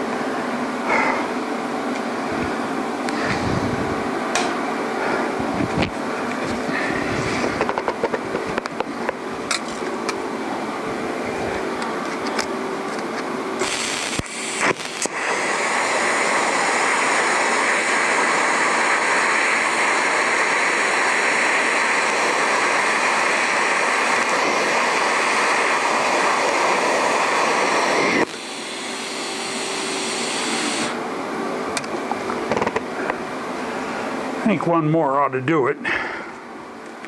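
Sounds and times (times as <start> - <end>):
welding arc hissing: 13.6 - 31.0.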